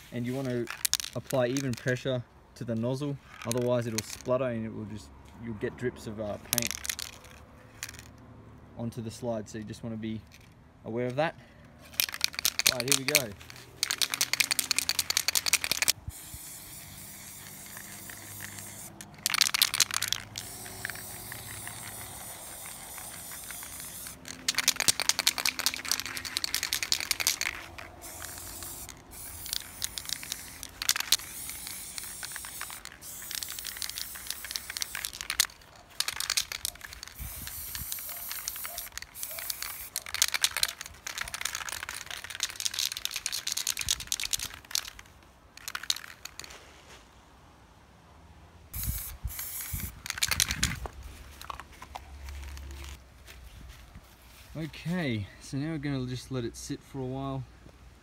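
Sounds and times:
spray paint can hissing: 0.0s - 2.0s, 3.3s - 4.3s, 6.3s - 8.1s, 11.9s - 46.5s, 48.7s - 53.0s.

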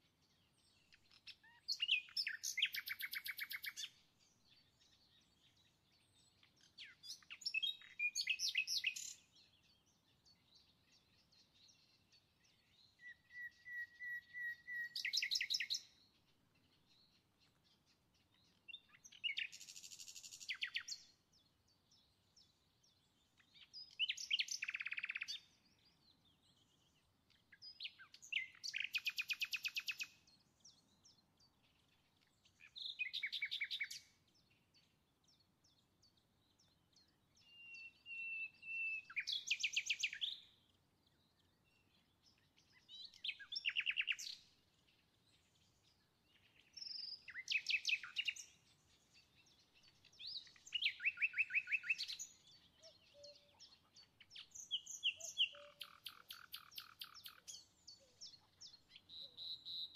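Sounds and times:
songbird trilling: 1.1s - 3.9s, 13.0s - 16.0s, 18.7s - 21.0s, 23.6s - 25.4s, 27.7s - 30.1s, 42.8s - 44.4s, 46.6s - 48.6s, 49.8s - 59.9s.

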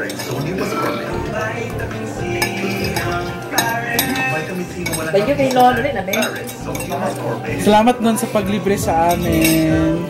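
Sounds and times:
cutlery clinking on plates: 0.0s - 8.4s, 9.0s - 10.0s
background music: 0.0s - 10.0s.

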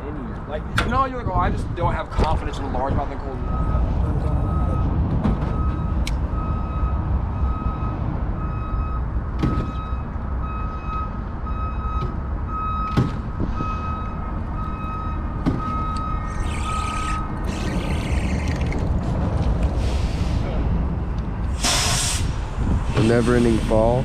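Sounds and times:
reversing alarm beeping: 3.4s - 4.9s, 5.5s - 18.2s
short hiss: 21.6s - 22.4s.

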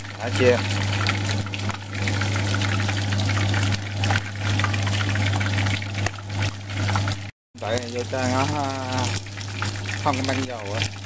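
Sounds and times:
hot oil sizzling and popping: 0.0s - 11.0s.

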